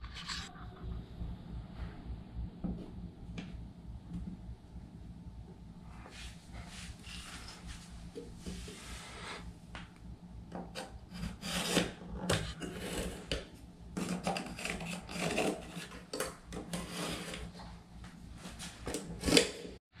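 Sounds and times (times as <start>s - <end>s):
oscillating tool cutting drywall: 10.7s - 13.4s, 14.0s - 16.1s.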